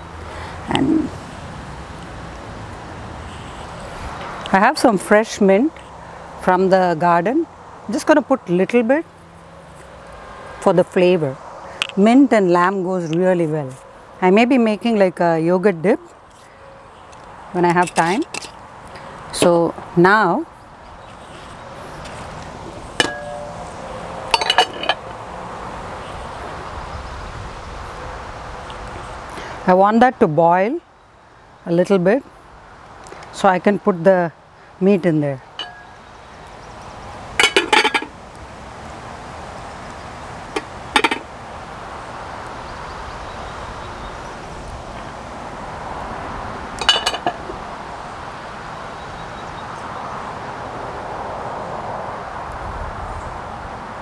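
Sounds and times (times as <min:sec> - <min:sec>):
cast iron cookware clinks: 0:23.0 - 0:23.6, 0:24.3 - 0:25.0, 0:35.6 - 0:36.0, 0:37.4 - 0:38.1, 0:40.6 - 0:41.3, 0:46.8 - 0:47.4.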